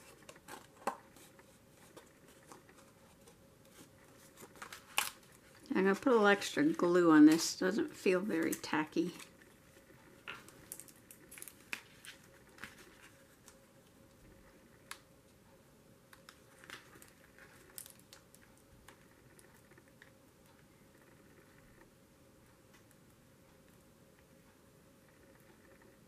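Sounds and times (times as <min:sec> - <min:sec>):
hands tapping and rustling paper: 0:00.0 - 0:09.4, 0:10.2 - 0:13.9
faint room hum: 0:00.0 - 0:26.0.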